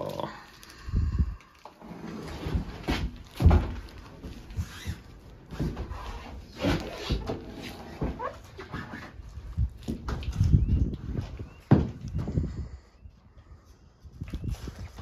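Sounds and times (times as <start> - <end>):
dull thumps and knocks: 2.6 - 4.4, 11.1 - 12.4.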